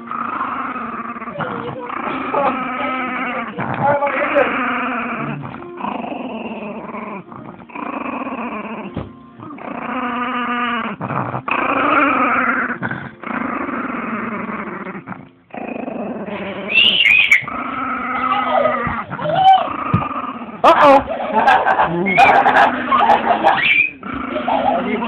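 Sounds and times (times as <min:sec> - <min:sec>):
small dog growling: 0:00.0 - 0:25.0.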